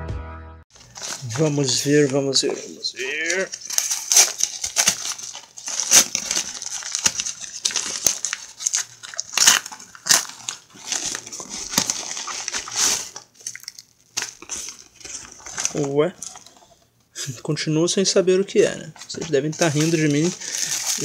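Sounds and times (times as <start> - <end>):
paper envelope crinkling: 0.7 - 16.7, 19.0 - 21.0.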